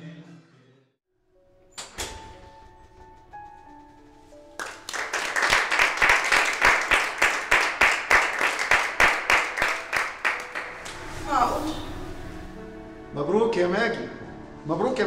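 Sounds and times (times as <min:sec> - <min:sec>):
soft music of slow held notes: 0:01.2 - 0:05.3, 0:09.8 - 0:15.0
people clapping: 0:04.6 - 0:11.1.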